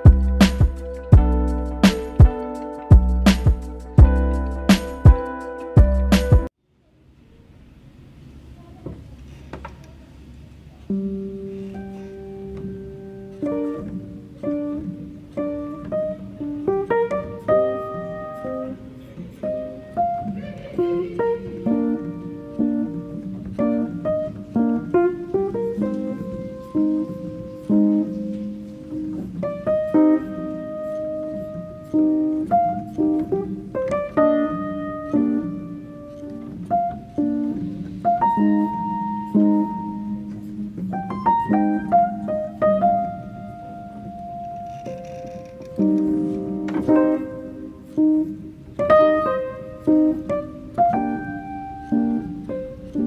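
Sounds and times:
slow melody over low chords: 0:00.0 - 0:06.5.

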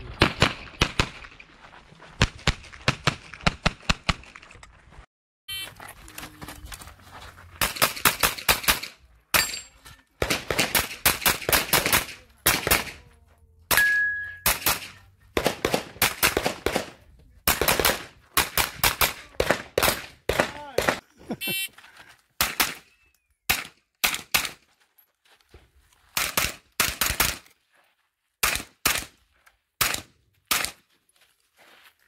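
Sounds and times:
pistol firing rapid shots: 0:10.2 - 0:13.0, 0:14.5 - 0:21.0, 0:22.4 - 0:22.8, 0:26.2 - 0:27.4, 0:28.4 - 0:29.1, 0:29.8 - 0:30.8.

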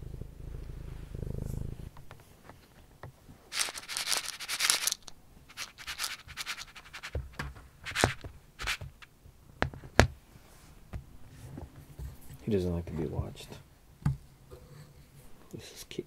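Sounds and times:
kibble rattling into plastic bowl: 0:03.5 - 0:09.1
bowl and kibble clicking on floor: 0:03.6 - 0:09.1.

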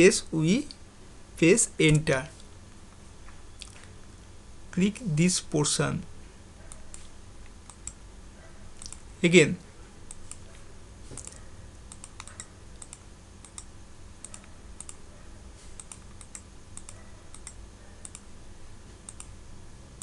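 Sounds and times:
low background hum: 0:00.0 - 0:20.0
mouse and keyboard clicking: 0:11.2 - 0:15.0, 0:15.8 - 0:18.2.

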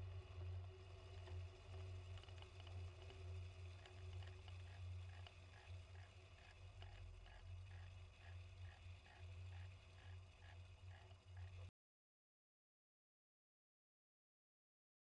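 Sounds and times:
faint regular ticks: 0:00.2 - 0:11.7.

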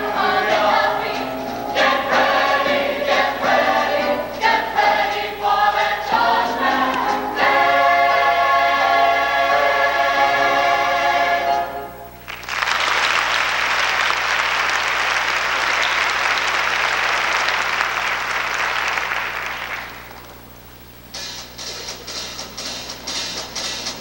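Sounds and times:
choir singing a chord: 0:00.0 - 0:12.2
audience applauding: 0:12.2 - 0:20.5.

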